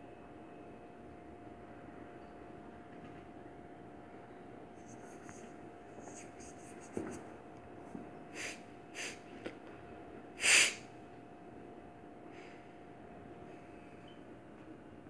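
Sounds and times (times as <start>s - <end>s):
faint steady hum: 0.0s - 15.0s
cat sniffing: 4.8s - 7.3s, 8.3s - 9.3s, 10.4s - 10.8s
cat snorting: 6.0s - 7.2s, 8.3s - 9.2s, 10.4s - 10.8s.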